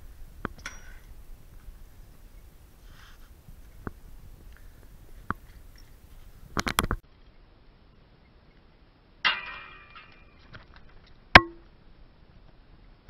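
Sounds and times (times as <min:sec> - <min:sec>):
metallic clank: 0:00.6 - 0:01.2, 0:09.2 - 0:10.7
bike scraping on concrete: 0:02.8 - 0:07.0.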